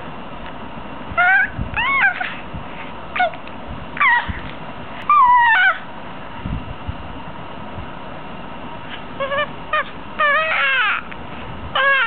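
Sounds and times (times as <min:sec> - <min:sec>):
infant cooing and squealing: 0:01.2 - 0:02.4, 0:04.0 - 0:04.4, 0:09.2 - 0:11.1, 0:11.8 - 0:12.0.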